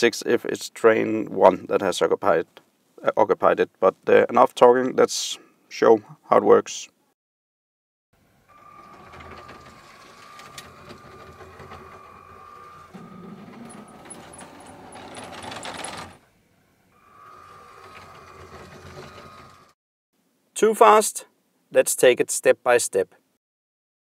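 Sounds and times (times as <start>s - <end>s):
toy train motors whirring: 8.5s - 16.2s, 17.0s - 19.7s.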